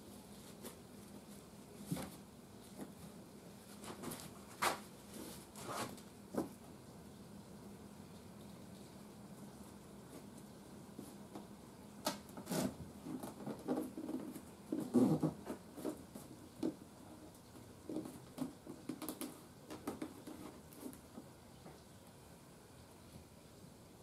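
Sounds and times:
hands scratching and tapping wood: 17.6 - 21.3.

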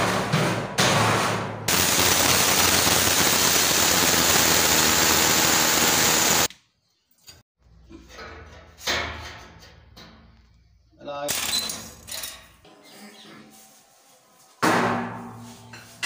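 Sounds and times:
hammer drill boring into masonry: 1.7 - 6.5.

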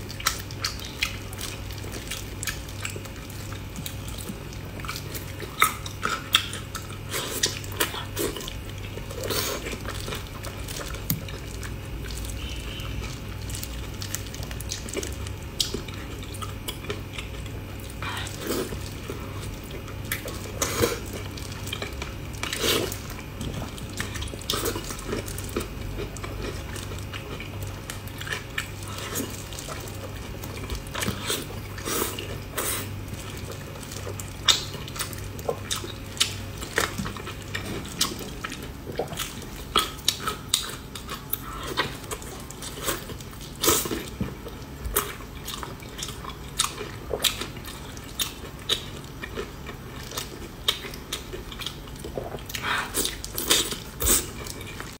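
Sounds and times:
low steady hum: 0.0 - 54.9
wet chewing and smacking: 0.0 - 54.9.

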